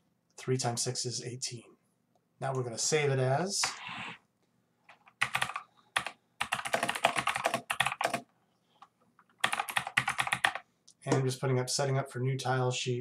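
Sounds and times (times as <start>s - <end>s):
loud keyboard typing: 4.9s - 8.3s, 9.2s - 10.6s.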